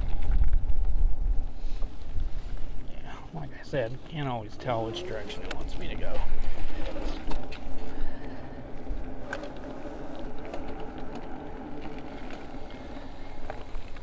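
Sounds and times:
wind and tyre rumble: 0.0s - 14.0s
steady motor hum: 3.2s - 14.0s.

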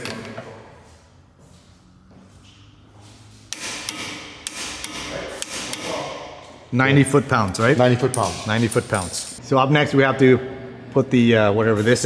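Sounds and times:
metal tools clinking: 7.8s - 9.4s.

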